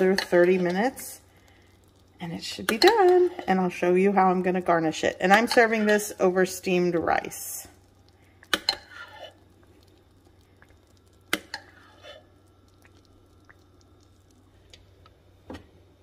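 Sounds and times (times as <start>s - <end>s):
sauce squishing and dripping: 0.0s - 3.6s, 7.7s - 15.5s.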